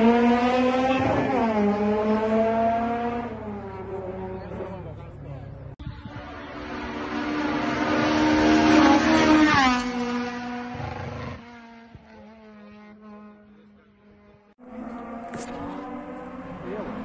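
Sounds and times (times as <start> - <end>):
race car engine passing by: 6.1 - 17.0.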